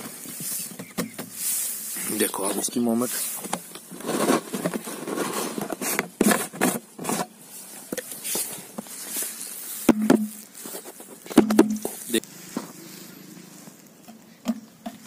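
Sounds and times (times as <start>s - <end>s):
scrapes and knocks around plastic jar: 3.1s - 12.1s
footsteps on sand: 7.5s - 14.1s.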